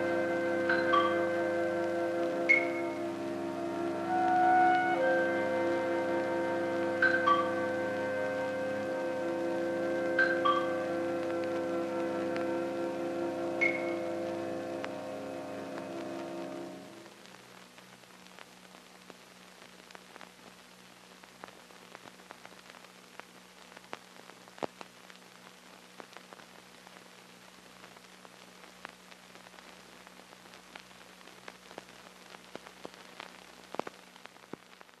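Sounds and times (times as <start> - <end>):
low hum: 0.0 - 17.4
film soundtrack hiss: 0.0 - 35.0.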